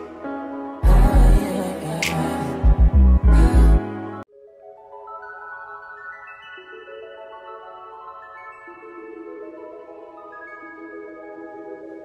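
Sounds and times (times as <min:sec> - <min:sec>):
bass-heavy music track: 0:00.8 - 0:04.2.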